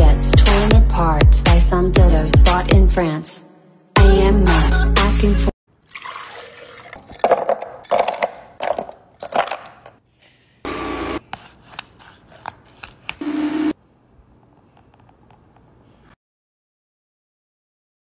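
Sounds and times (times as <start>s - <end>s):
blender chopping frozen fruit: 10.7s - 11.3s.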